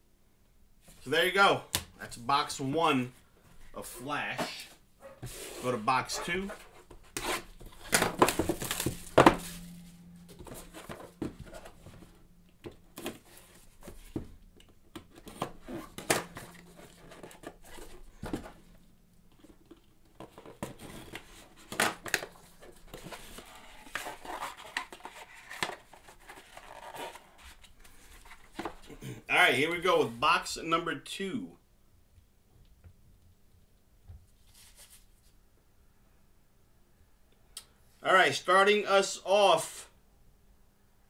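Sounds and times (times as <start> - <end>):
plastic wrap tearing and crinkling: 7.4 - 9.7.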